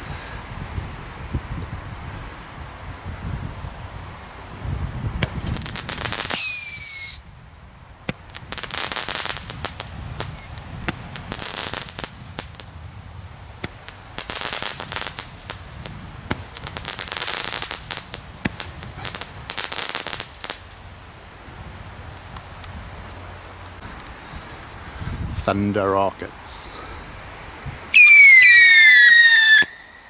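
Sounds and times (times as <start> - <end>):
firework crackling: 4.1 - 30.0
firework pops: 5.2 - 7.2, 8.1 - 12.7, 13.6 - 20.6
firework falling whistle: 6.3 - 7.8, 27.9 - 30.0.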